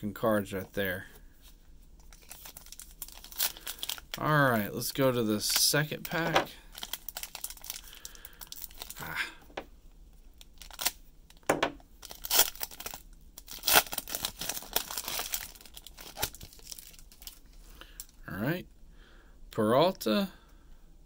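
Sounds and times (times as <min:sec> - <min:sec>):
foil wrapper tearing and crinkling: 0:02.1 - 0:04.3, 0:05.4 - 0:09.2, 0:10.4 - 0:11.0, 0:12.0 - 0:17.5.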